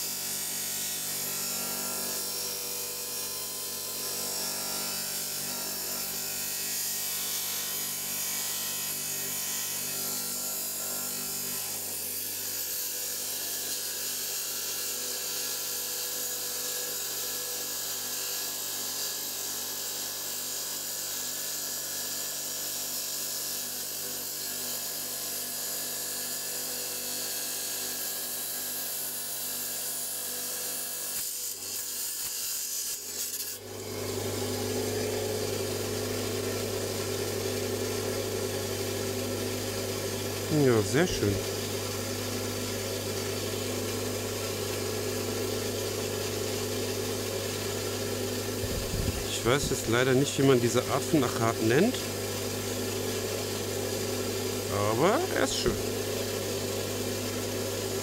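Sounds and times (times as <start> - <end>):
motor humming: 33.6 - 58.0
rock saw grinding stone: 40.4 - 41.8.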